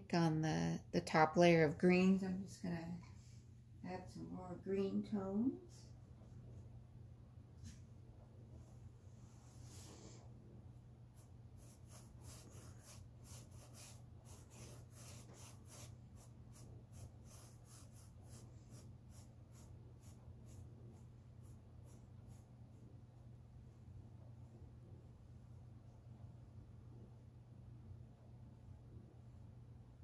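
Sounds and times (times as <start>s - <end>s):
steady low hum: 0.0s - 30.0s
paintbrush dabbing on canvas: 11.1s - 22.7s.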